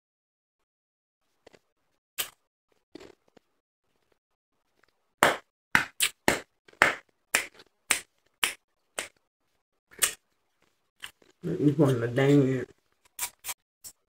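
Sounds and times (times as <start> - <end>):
chewing crushed ice crunches: 2.2 - 3.5.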